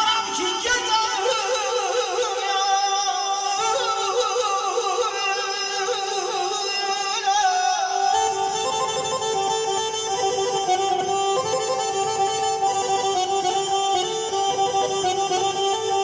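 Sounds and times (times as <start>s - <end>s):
man singing into microphone: 0.0s - 8.9s.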